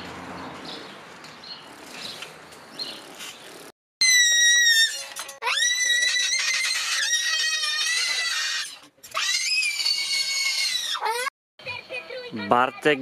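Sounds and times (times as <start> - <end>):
toy keyboard squealing tones: 4.0 - 11.2.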